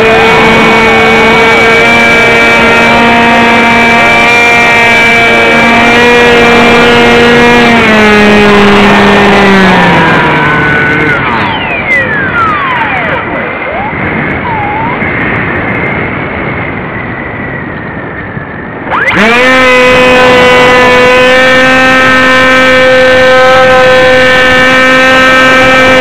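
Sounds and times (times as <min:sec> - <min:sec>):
model plane motor drone: 0:00.0 - 0:17.4, 0:18.4 - 0:26.0
rushing wind: 0:00.0 - 0:26.0.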